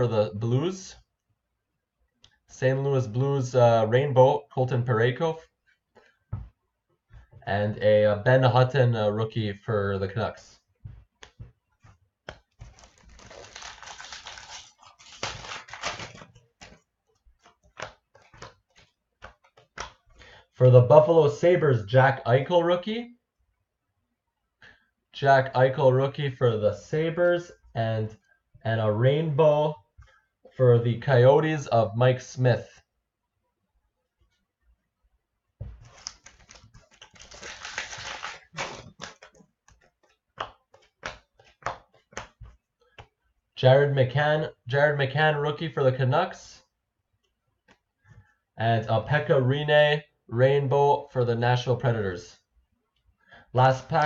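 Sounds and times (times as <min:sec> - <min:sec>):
cards clicking and snapping: 0:12.2 - 0:16.8, 0:17.4 - 0:20.1, 0:35.8 - 0:43.1
foil wrapper crinkling: 0:12.5 - 0:16.8, 0:35.8 - 0:39.4.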